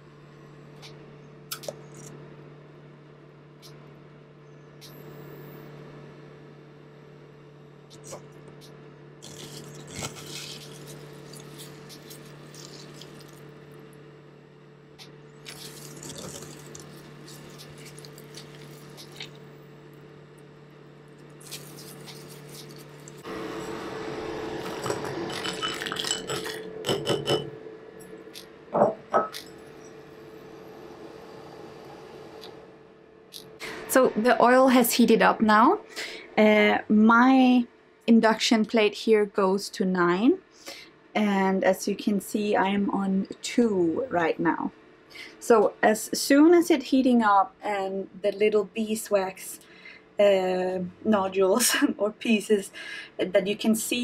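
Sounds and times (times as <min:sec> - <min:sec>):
induction hob hum: 0:00.0 - 0:54.0
squishing petals in strainer: 0:09.2 - 0:13.7, 0:15.4 - 0:19.6, 0:21.2 - 0:23.3.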